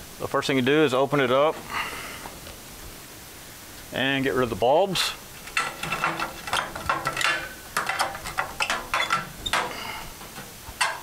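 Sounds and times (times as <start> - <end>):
fluorescent tubes clicking and scraping: 5.3 - 11.0.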